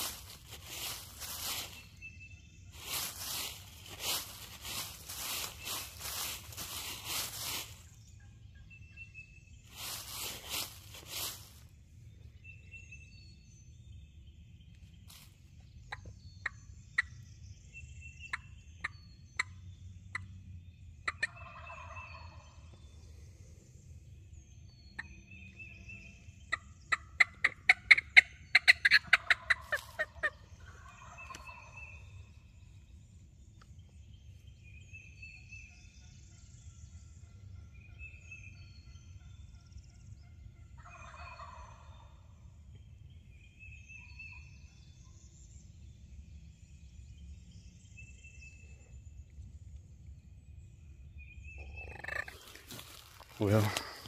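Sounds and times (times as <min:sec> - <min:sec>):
leaves rustling: 0:00.0 - 0:02.1, 0:02.7 - 0:08.0, 0:09.7 - 0:11.7, 0:15.1 - 0:15.4, 0:29.5 - 0:30.0, 0:51.9 - 0:54.0
faint songbirds chirping: 0:00.0 - 0:54.0
turkey call clucks and cutts: 0:18.3 - 0:20.3, 0:21.0 - 0:22.5, 0:26.5 - 0:32.0, 0:40.8 - 0:42.0, 0:51.6 - 0:54.0.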